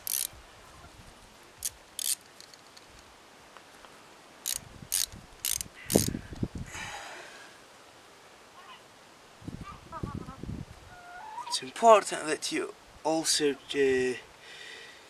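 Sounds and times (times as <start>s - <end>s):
ratchet wrench clicking: 0.0s - 0.3s, 1.6s - 2.6s, 4.4s - 6.1s.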